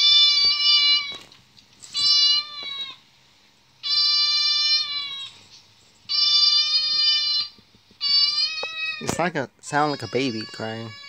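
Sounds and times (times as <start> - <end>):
recorded cat meows: 0.0 - 3.0, 6.1 - 9.2.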